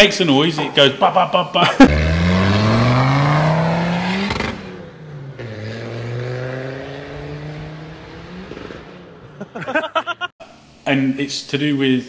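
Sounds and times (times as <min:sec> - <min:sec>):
car engine accelerating past: 0:01.9 - 0:09.4.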